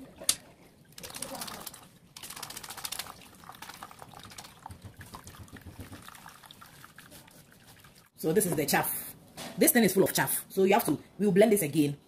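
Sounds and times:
liquid trickling into a plastic basin: 0.9s - 8.2s
pulp squeezed through a sieve: 1.0s - 8.2s.

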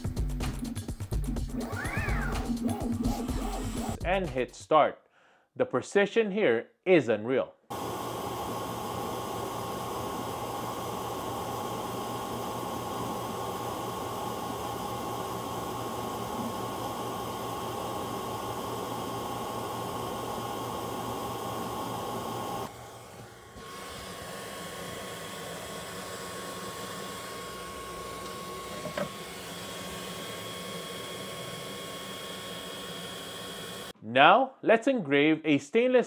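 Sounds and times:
laser engraver whirr and whine: 7.7s - 33.9s.

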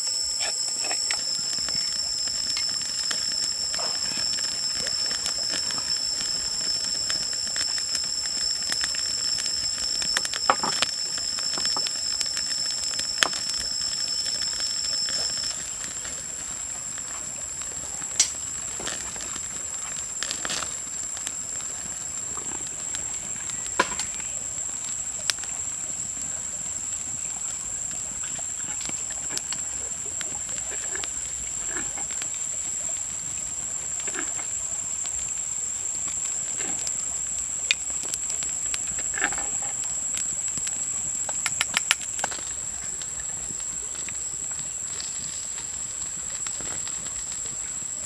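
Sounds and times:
even hiss: 0.0s - 48.0s
insects droning: 0.0s - 48.0s
sharp clicks: 41.3s - 42.6s.

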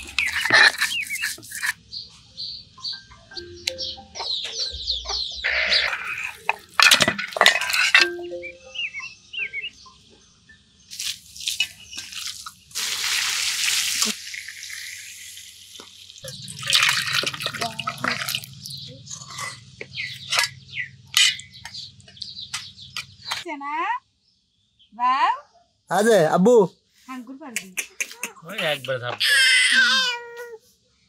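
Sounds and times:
knocks and scrapes: 0.0s - 1.8s, 5.7s - 8.2s
birds chirping: 0.0s - 12.8s, 15.8s - 30.4s
water pouring into a pot: 10.9s - 18.7s.

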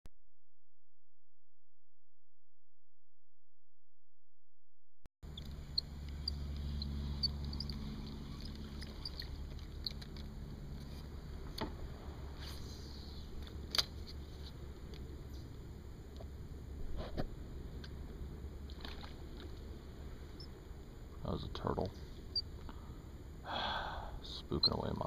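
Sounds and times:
steady low rumble: 5.2s - 25.0s.

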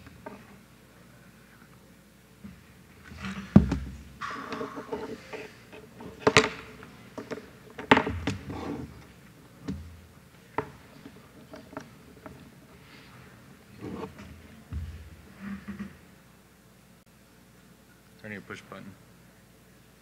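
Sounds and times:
equipment handled on lectern: 2.4s - 9.9s, 10.5s - 16.0s
heavy thump: 3.2s - 5.0s, 13.8s - 15.9s
sharp knocks: 3.2s - 5.3s.

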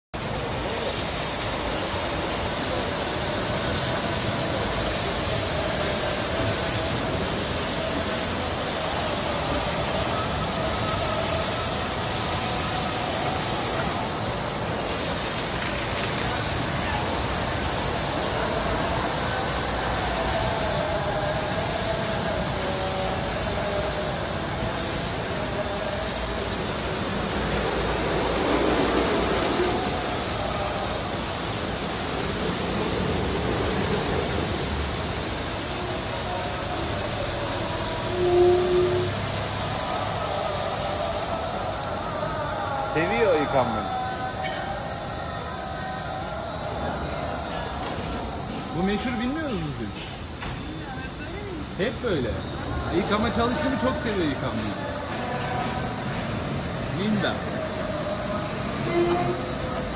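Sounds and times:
water spray hissing: 0.2s - 44.9s, 45.5s - 59.9s.

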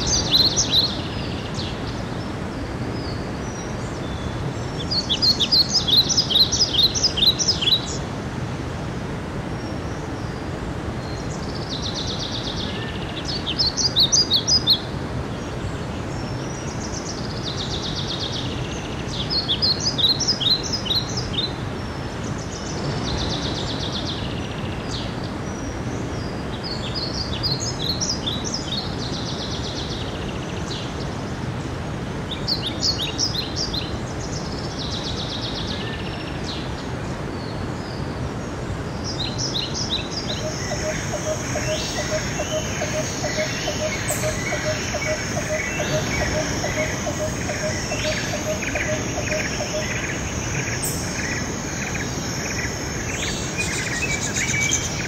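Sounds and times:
songbird trilling: 0.0s - 1.6s, 4.8s - 8.0s, 39.3s - 55.0s.

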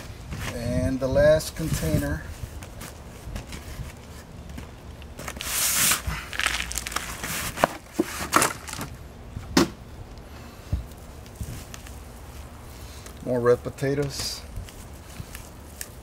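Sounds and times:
soil rushing onto plastic tarp: 5.3s - 8.8s.

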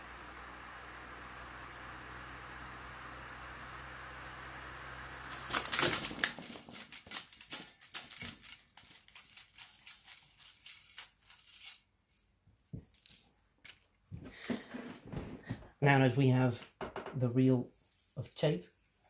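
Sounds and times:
tape deck motors humming: 0.0s - 6.3s.

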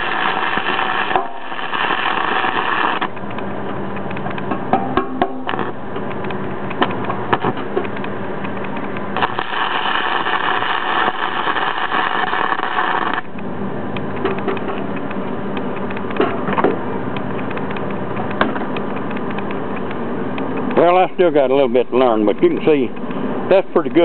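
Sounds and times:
welding arc hissing: 0.0s - 3.2s, 5.3s - 6.0s, 9.1s - 13.3s
steady low hum: 0.0s - 24.0s.

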